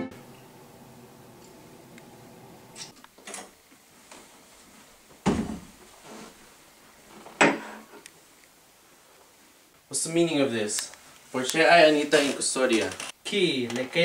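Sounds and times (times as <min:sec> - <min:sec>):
wooden door knocks: 0:05.2 - 0:05.7
loud door thuds: 0:05.2 - 0:05.8.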